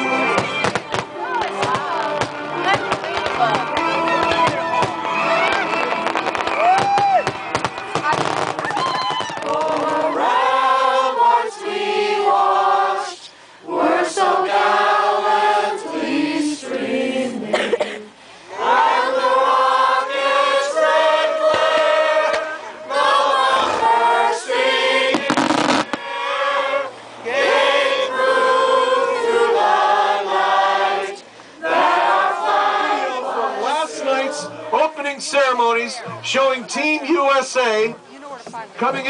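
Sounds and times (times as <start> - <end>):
group of voices singing: 0.0 - 4.7, 9.4 - 35.2.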